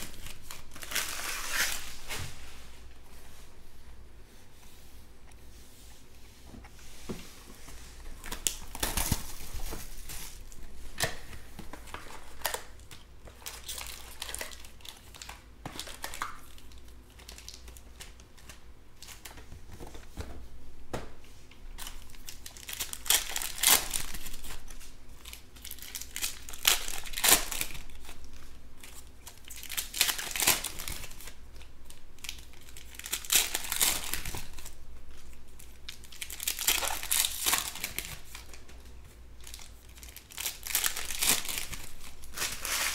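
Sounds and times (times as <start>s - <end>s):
plastic wrapper tearing: 0.0s - 2.0s, 8.2s - 19.4s, 21.8s - 38.6s, 39.4s - 42.9s
plastic wrappers crinkling: 0.0s - 2.4s, 7.8s - 20.0s, 21.7s - 42.9s.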